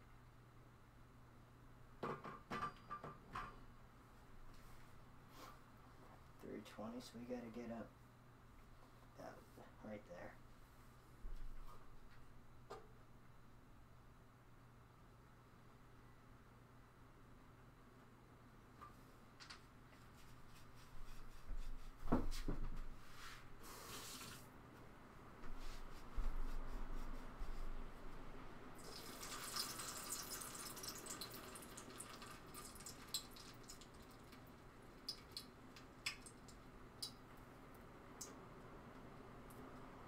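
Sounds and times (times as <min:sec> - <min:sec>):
hot oil sizzling in a pot: 0:28.8 - 0:34.4.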